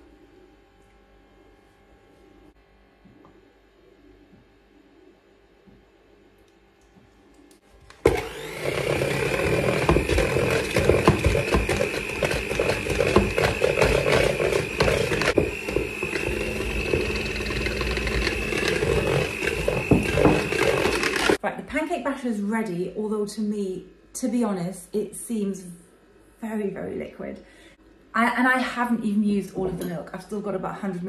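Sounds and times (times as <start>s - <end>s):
electric hand mixer motor whine: 7.9s - 21.4s.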